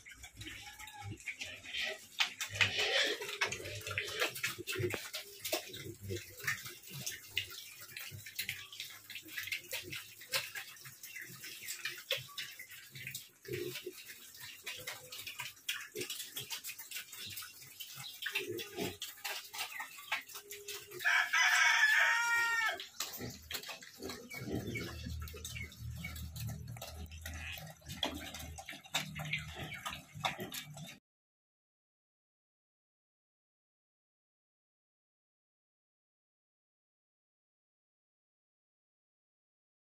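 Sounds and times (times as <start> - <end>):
pigs eating from a trough: 0.0 - 31.0
rooster crowing: 21.0 - 22.8.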